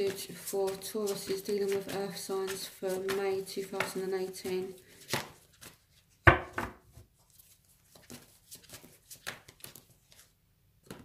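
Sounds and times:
cards shuffling clicks and taps: 0:00.0 - 0:06.1, 0:07.2 - 0:11.0
cards thumping on table: 0:06.3 - 0:06.8.

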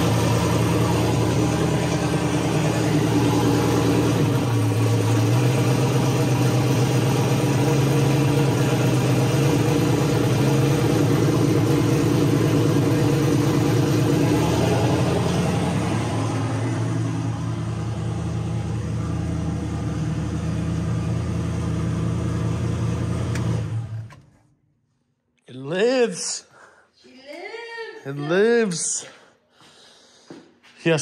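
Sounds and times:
car engine idling: 0:00.0 - 0:24.6.

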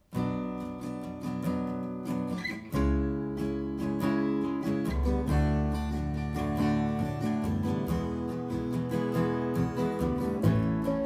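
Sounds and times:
acoustic guitar strumming: 0:00.0 - 0:11.0.

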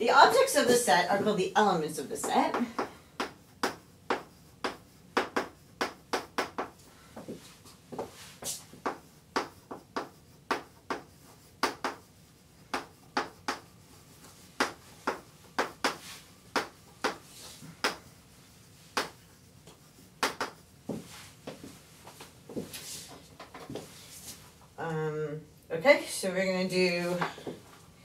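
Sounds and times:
chalk tapping on blackboard: 0:02.2 - 0:18.2, 0:18.8 - 0:24.4
chalk scratching: 0:03.2 - 0:21.4.

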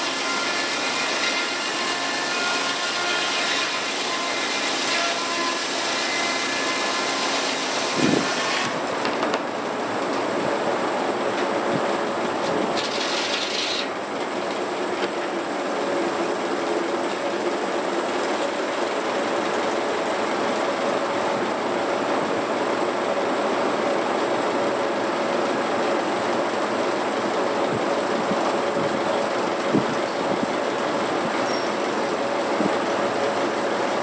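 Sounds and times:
sawmill blade spinning: 0:12.2 - 0:19.6.

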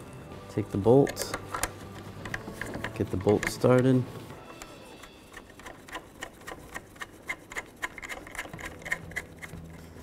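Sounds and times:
hand ratchet clicking: 0:01.1 - 0:04.0, 0:05.3 - 0:09.6.

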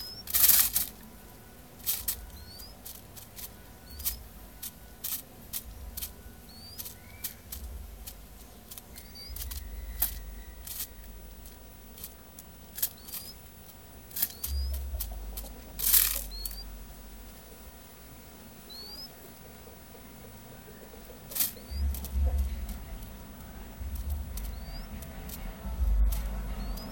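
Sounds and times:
beak tapping on paper: 0:00.0 - 0:01.1, 0:01.8 - 0:16.7, 0:20.8 - 0:26.9
rustle: 0:00.0 - 0:26.9
faint rising chirps: 0:02.1 - 0:05.0, 0:05.8 - 0:07.9, 0:08.9 - 0:11.5, 0:14.2 - 0:17.2, 0:18.7 - 0:19.2, 0:20.4 - 0:26.9.

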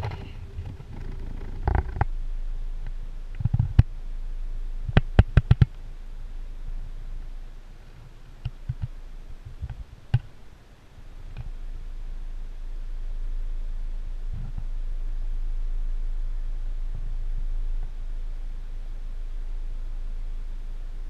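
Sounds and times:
steady low rumble: 0:00.0 - 0:21.0
sharp clicks and knocks: 0:02.8 - 0:03.9, 0:04.9 - 0:05.8, 0:08.4 - 0:10.4.

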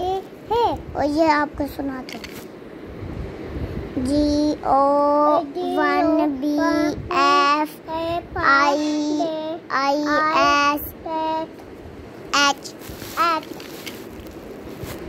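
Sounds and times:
child singing: 0:04.2 - 0:11.5.

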